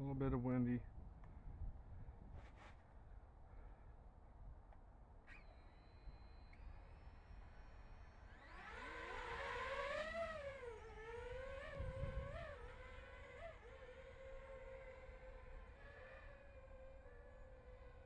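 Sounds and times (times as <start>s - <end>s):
wind rumble on microphone: 0.0s - 2.8s, 9.4s - 18.0s
drone motors whining: 5.3s - 18.0s.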